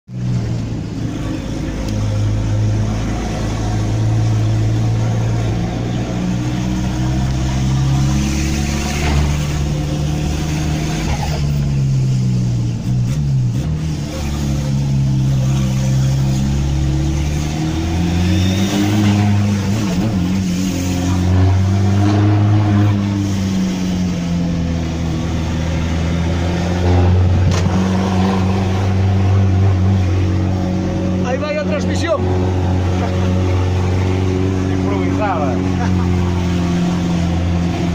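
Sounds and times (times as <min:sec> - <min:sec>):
diesel engine from inside cab: 0:00.1 - 0:37.9.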